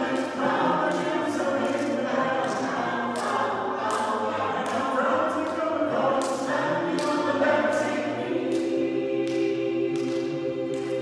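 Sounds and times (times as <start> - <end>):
sharp ticks on the beat: 0.0 - 5.6
a cappella group singing: 0.0 - 11.0.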